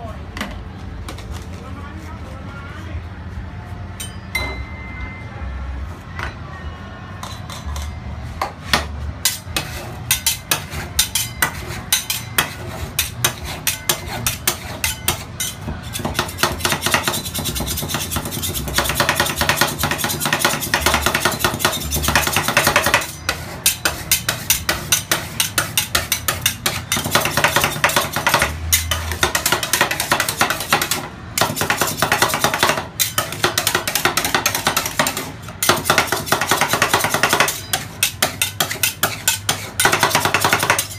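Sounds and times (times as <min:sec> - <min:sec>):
metal spatulas chopping on steel: 0:08.7 - 0:40.9.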